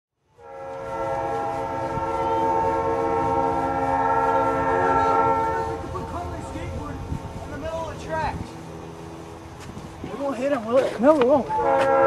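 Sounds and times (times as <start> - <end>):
locomotive air horn: 0.3 - 6.6, 11.3 - 12.0.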